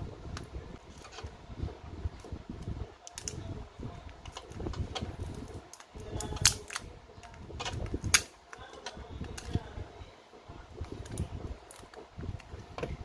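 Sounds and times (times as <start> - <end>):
pry tool scraping phone battery: 4.2 - 6.8.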